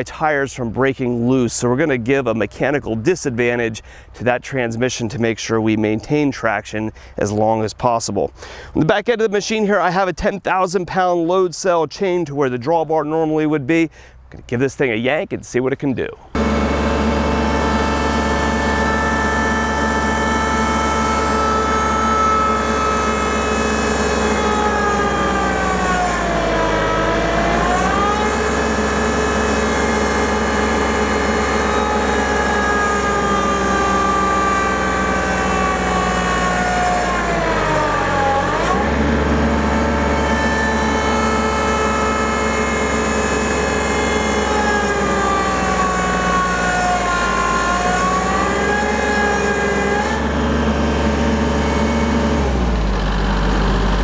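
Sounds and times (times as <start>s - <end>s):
tractor diesel engine straining: 16.1s - 54.0s.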